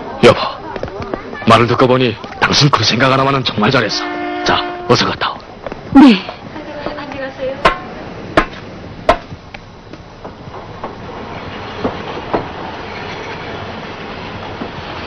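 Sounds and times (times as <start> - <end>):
train rushing noise: 0.0 - 5.6, 6.4 - 15.0
sharp knock: 7.6 - 9.4.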